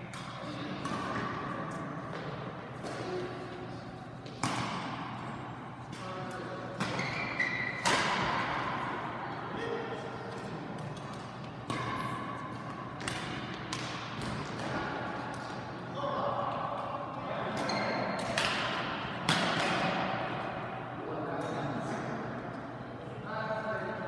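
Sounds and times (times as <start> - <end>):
rackets striking shuttlecock: 4.2 - 5.2, 5.8 - 8.8, 10.3 - 15.6, 17.6 - 20.4.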